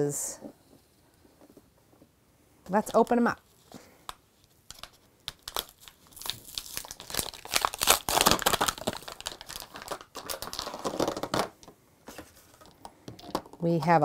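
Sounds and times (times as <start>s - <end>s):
plastic packaging tearing and crinkling: 4.7s - 11.5s.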